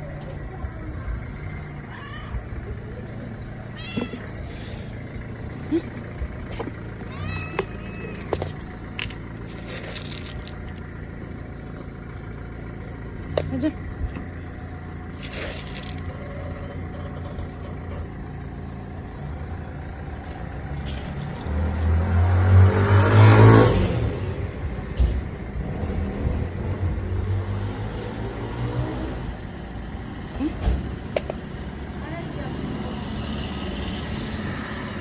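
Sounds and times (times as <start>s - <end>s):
low rumble of traffic: 0.0s - 35.0s
car passing close by: 21.4s - 24.5s.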